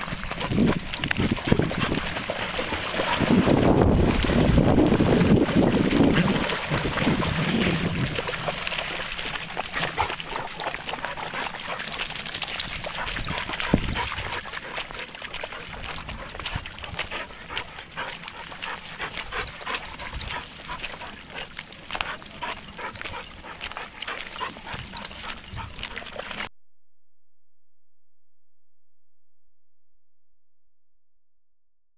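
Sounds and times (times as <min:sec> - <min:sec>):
wind buffeting microphone: 0:00.0 - 0:08.5, 0:12.7 - 0:14.4, 0:19.0 - 0:21.0, 0:24.4 - 0:26.0
dogs scrambling on bank: 0:00.0 - 0:26.5
dogs splashing through water: 0:00.0 - 0:26.5.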